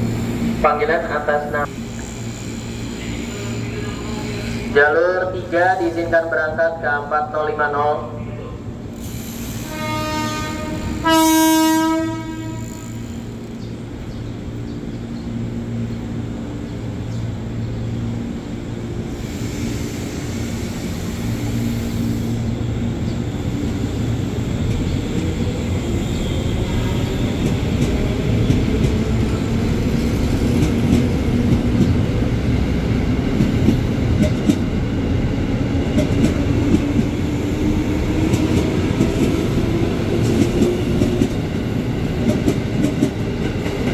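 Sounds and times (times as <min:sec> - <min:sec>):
train pulling away: 0:00.0 - 0:06.4, 0:08.8 - 0:11.0, 0:12.2 - 0:43.9
train horn blast: 0:09.6 - 0:13.0.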